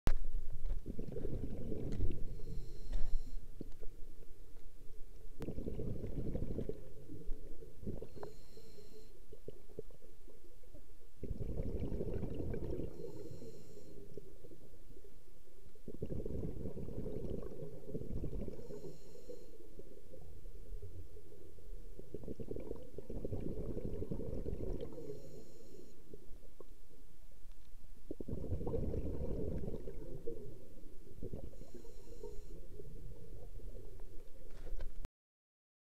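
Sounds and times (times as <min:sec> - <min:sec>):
exhaled bubbles underwater: 0:00.6 - 0:04.2, 0:05.4 - 0:15.1, 0:15.8 - 0:26.8, 0:28.0 - 0:34.5
regulator inhale hiss: 0:02.2 - 0:03.5, 0:08.1 - 0:09.3, 0:12.9 - 0:14.2, 0:18.5 - 0:19.8, 0:24.9 - 0:26.2, 0:31.5 - 0:32.8.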